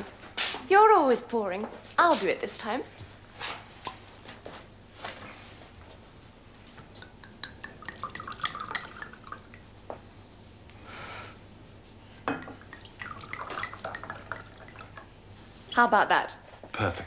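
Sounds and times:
wine glugging into glass: 7.0 - 9.6, 12.2 - 15.1.

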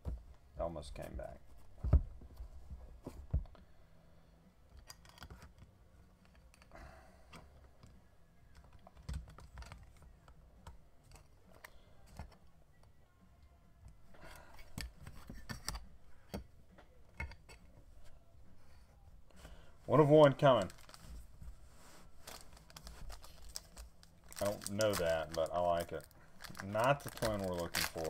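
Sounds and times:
trading cards clicking and rustling: 22.2 - 28.0.

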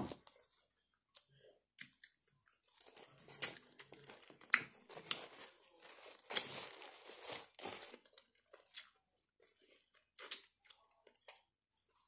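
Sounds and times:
chewing food clicks and crackles: 8.0 - 11.5.

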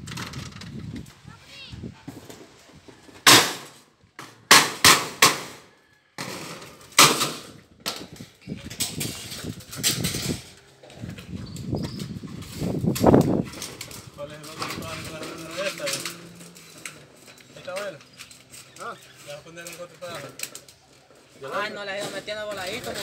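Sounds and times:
bangs on corrugated metal roof: 3.2 - 8.1.

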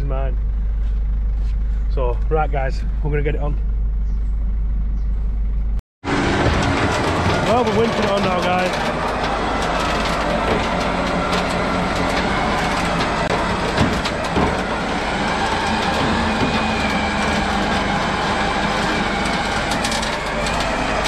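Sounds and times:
knocks: 6.3 - 20.7
winch running with rattle: 6.3 - 21.0.

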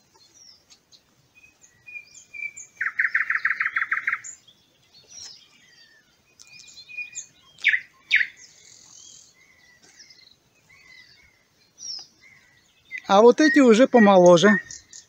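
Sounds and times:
songbirds chirping and singing: 0.0 - 15.0.

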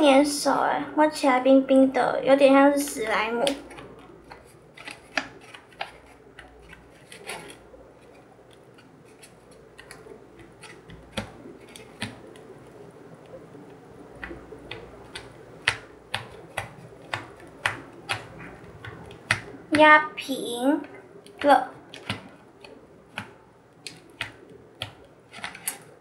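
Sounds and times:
fingers pressing dough in plastic tray: 3.0 - 20.0, 20.6 - 26.0
plastic clicks and taps: 20.8 - 25.9.

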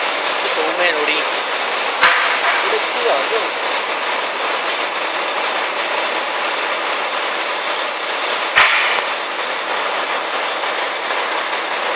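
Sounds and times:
crane truck engine and hydraulics: 0.0 - 11.9
sharp knock: 2.0 - 2.7, 8.6 - 9.1.

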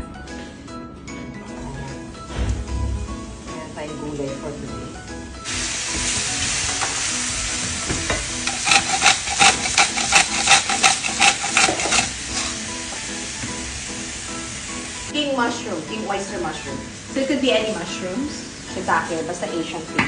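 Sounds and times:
faint background music: 0.0 - 20.0
mushrooms sizzling in oil: 5.4 - 20.0
salt grinder ratcheting: 8.4 - 12.6.

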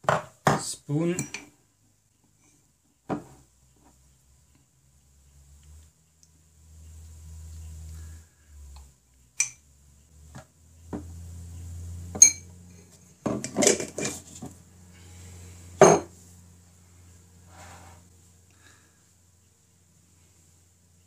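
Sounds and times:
low steady hum: 1.2 - 21.0
knocks and scrapes: 3.1 - 4.0, 12.9 - 14.6, 17.4 - 18.1
spoon clinking against glass: 9.4 - 9.6, 12.2 - 12.5.

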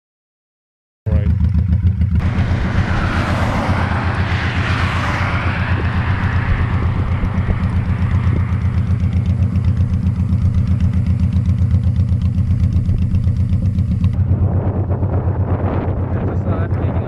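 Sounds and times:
motorcycle engine idling: 1.1 - 2.5, 6.6 - 17.0.

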